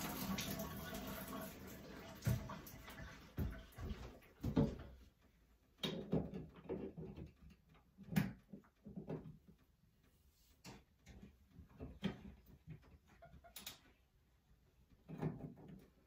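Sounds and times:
running water: 0.0 - 4.9
knocks and clunks on shower head: 5.8 - 9.4.

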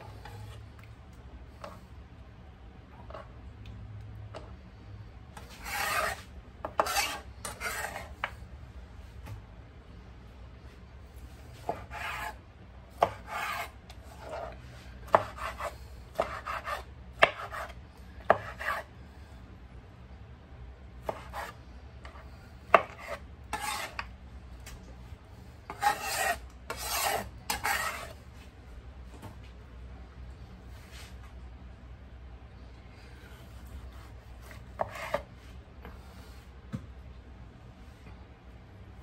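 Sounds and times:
rasping scraping strokes: 5.4 - 8.2, 13.0 - 16.8, 22.8 - 24.0, 25.7 - 28.2.

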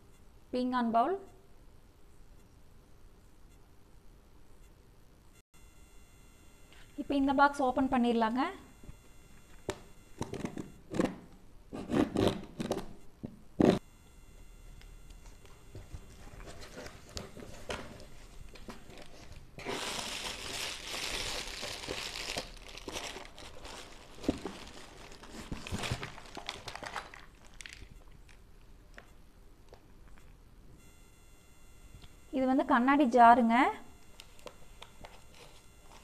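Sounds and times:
knife slitting packing tape: 11.8 - 12.9
cardboard rustling: 15.7 - 27.8
plastic packing crinkling: 16.1 - 29.0.

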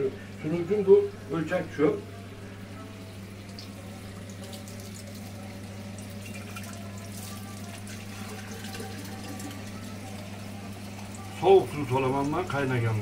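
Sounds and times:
steady low hum: 0.0 - 13.0
tap water running into glass jar: 3.4 - 12.7.

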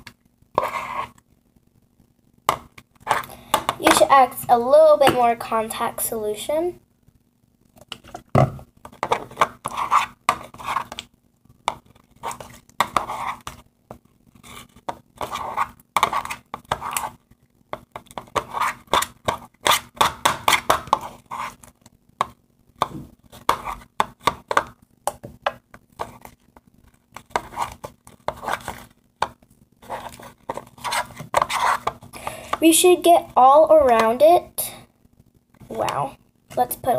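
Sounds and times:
spoon stirring slime in bowl: 0.0 - 1.2, 8.9 - 17.2, 17.8 - 34.2.

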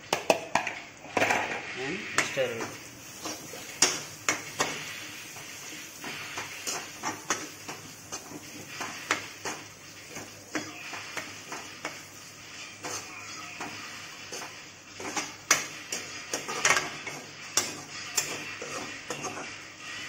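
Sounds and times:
frying hiss: 0.0 - 20.0
metal spoon scraping a pan: 1.1 - 20.0.

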